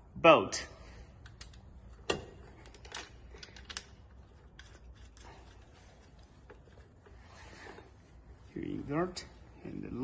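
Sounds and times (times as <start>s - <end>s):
soft rubbing: 5.3s - 10.0s.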